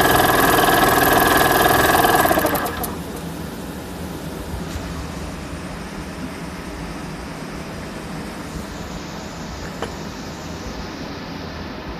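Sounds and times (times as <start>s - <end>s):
air compressor running: 0.0s - 3.3s.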